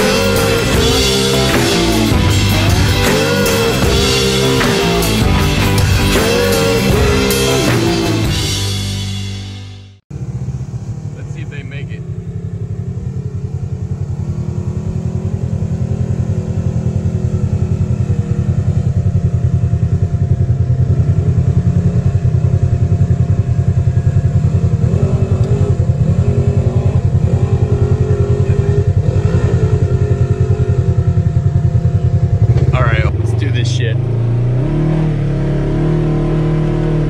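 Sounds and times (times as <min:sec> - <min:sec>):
engine climbing a hill: 0:00.0 - 0:08.7, 0:10.1 - 0:37.0.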